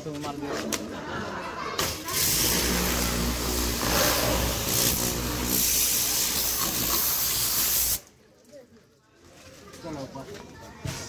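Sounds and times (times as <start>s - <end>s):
water jet hissing: 2.1s - 8.0s
electric motor and pump humming: 2.2s - 8.0s.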